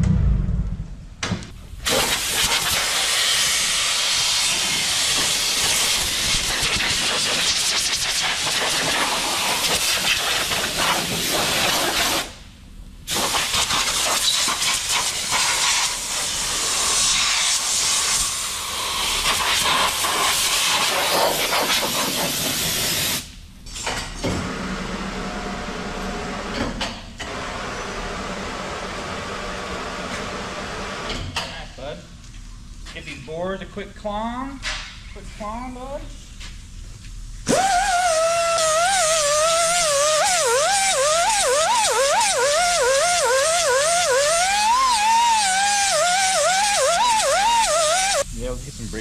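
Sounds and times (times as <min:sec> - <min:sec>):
pressure washer spraying metal: 0:01.9 - 0:12.3, 0:13.1 - 0:23.2, 0:37.5 - 0:48.2.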